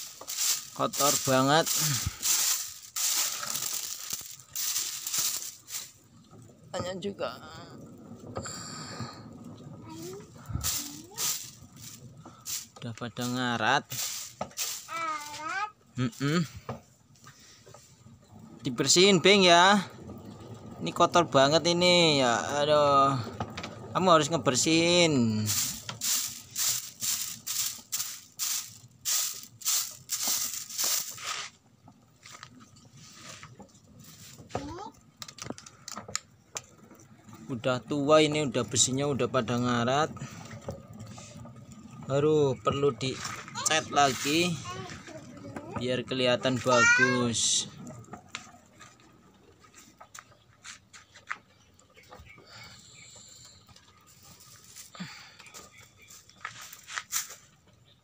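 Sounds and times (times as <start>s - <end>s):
stiff broom scratching metal: 0.0s - 6.0s, 25.2s - 31.6s
thresher drum spinning: 0.0s - 14.9s, 17.8s - 31.2s, 36.6s - 49.7s
faint irregular ticks and scrapes: 0.0s - 58.0s.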